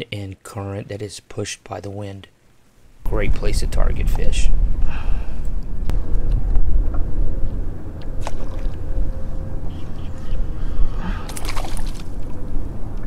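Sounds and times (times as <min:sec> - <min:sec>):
wind rumbling on microphone: 0:03.0 - 0:13.0.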